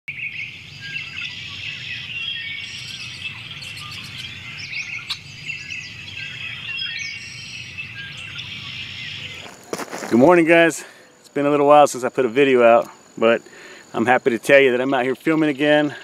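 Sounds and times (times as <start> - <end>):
birds chirping and singing: 0.1 - 11.6.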